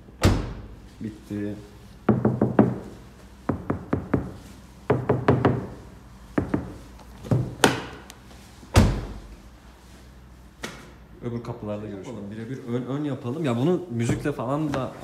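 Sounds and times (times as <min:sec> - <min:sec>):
knuckles knocking on car door: 0:02.1 - 0:02.8, 0:03.5 - 0:05.8, 0:06.4 - 0:07.8.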